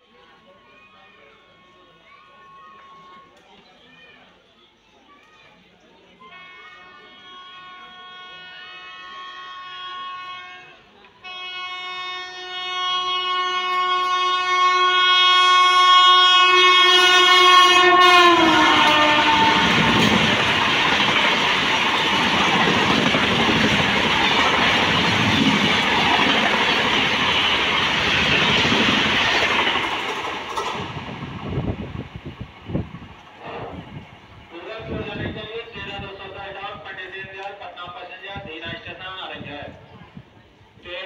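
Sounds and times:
train horn: 1.4 - 3.3, 6.2 - 29.9
train coaches clattering past: 7.2 - 36.4.

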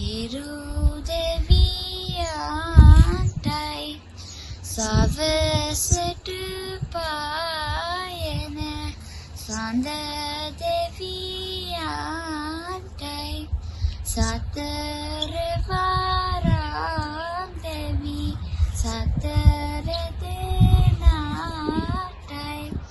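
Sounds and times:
low thumps: 0.0 - 3.9, 13.4 - 22.9
girl singing: 0.0 - 22.9.

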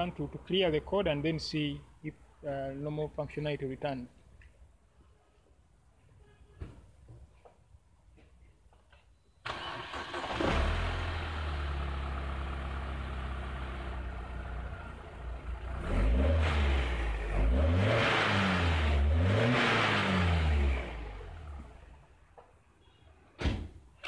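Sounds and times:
car engine starting: 9.4 - 22.1
car engine idling: 9.5 - 17.6
car engine revving: 9.5 - 22.0.

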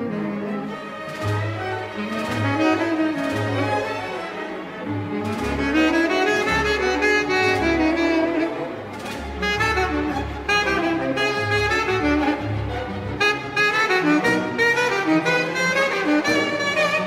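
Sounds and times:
string orchestra: 0.0 - 17.0
tenor saxophone melody: 0.0 - 17.0
double bass notes: 4.8 - 17.0.

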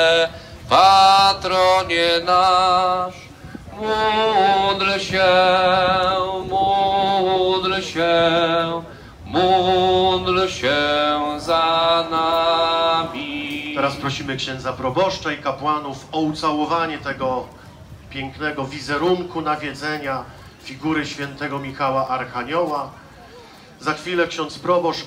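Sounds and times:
man singing a hymn: 0.0 - 17.4.

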